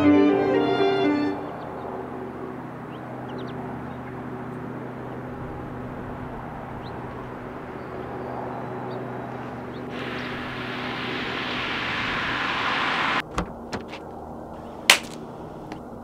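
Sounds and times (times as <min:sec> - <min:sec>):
steady low rumble: 0:05.0 - 0:16.0.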